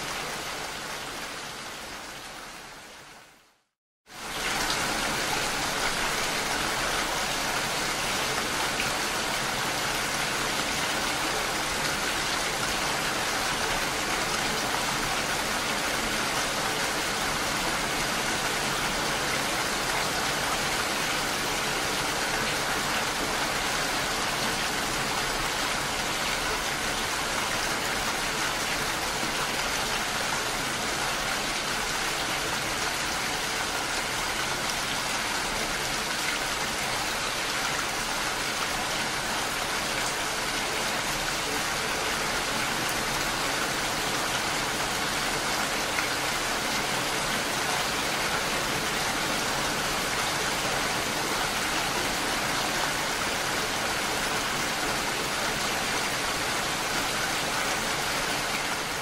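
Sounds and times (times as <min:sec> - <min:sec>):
steady rain: 0:00.0 - 0:59.0.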